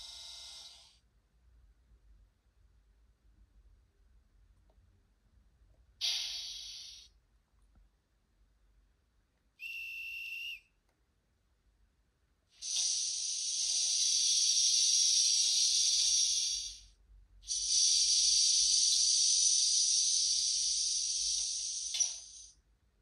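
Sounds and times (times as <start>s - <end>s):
steady whistle tone: 0.0s - 0.9s, 6.0s - 7.1s, 9.6s - 10.8s, 12.6s - 22.6s
air hiss from small speaker: 0.0s - 1.1s, 6.0s - 7.2s, 12.5s - 22.7s.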